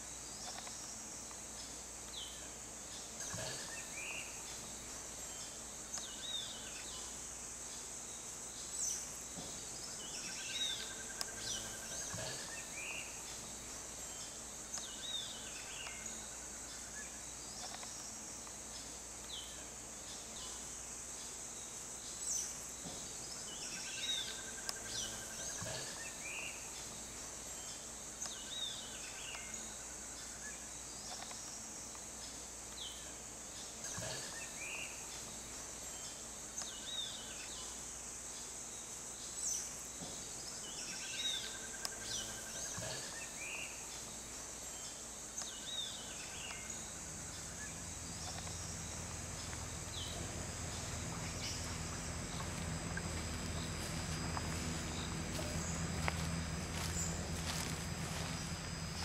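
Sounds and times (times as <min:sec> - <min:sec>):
high-pitched insect drone: 0:32.8 - 0:59.0
birds chirping: 0:40.6 - 0:59.0
low rumble: 0:47.2 - 0:59.0.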